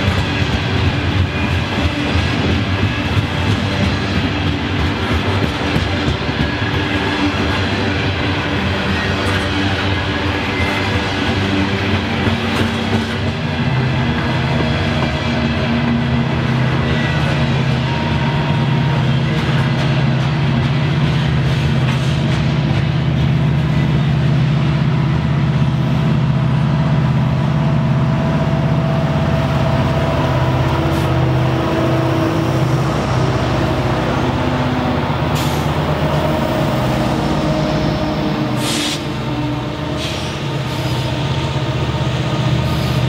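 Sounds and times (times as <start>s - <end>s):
diesel locomotive engines droning: 0.0s - 43.0s
air hissing: 38.5s - 39.1s.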